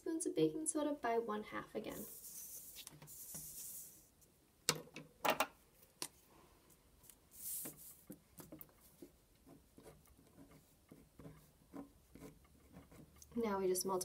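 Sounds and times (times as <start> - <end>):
paper sliding rustle: 2.0 - 4.1, 7.3 - 8.2
pen scratching on paper: 8.8 - 13.2.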